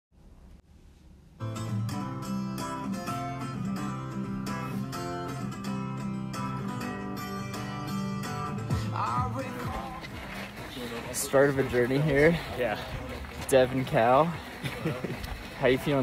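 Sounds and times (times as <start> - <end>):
strummed acoustic guitar: 1.4 - 10.6.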